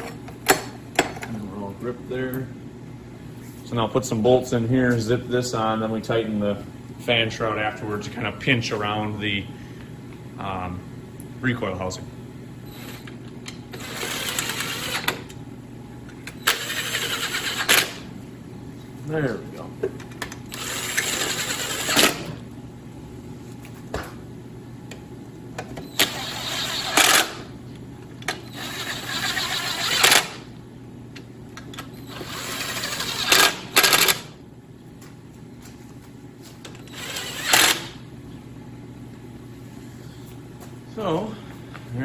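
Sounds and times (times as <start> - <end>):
cordless drill driving bolts: 36.9 - 37.9.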